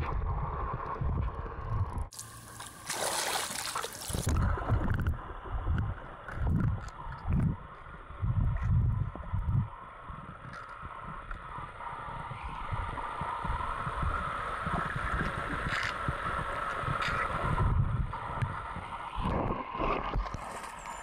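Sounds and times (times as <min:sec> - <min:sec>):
soft low paddling pulses: 0:00.0 - 0:21.0
muffled underwater watery hiss: 0:08.4 - 0:21.0.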